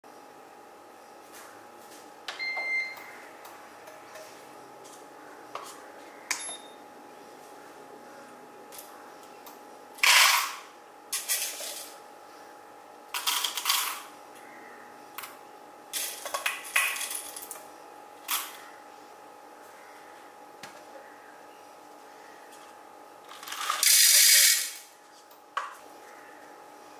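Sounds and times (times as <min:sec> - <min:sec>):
coffee beans rattling into cup: 0:16.0 - 0:17.6, 0:23.3 - 0:24.9.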